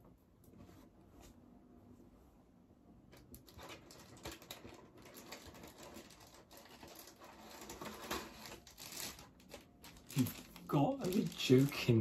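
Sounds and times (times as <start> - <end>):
packaging rustling and crinkling: 3.1 - 12.0.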